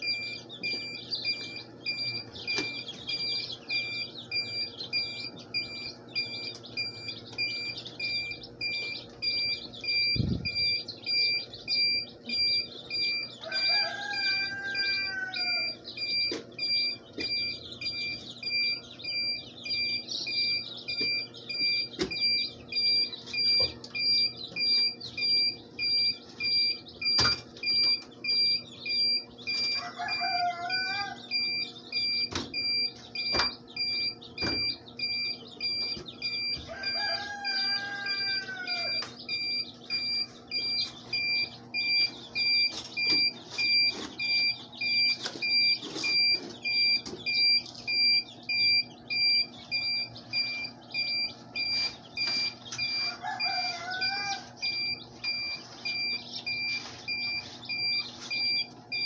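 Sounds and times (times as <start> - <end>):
chicks peeping: 0.0 - 59.0
electronic beep: 0.0 - 59.0
rooster crowing: 13.0 - 16.2, 29.1 - 31.6, 36.3 - 40.1, 52.4 - 56.6.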